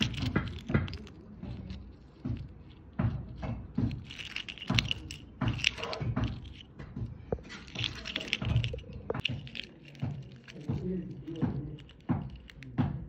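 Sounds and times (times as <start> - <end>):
metal watch bracelet clinking: 0.0 - 2.8, 3.7 - 6.8, 7.4 - 12.7
handling clicks and knocks: 0.0 - 13.0.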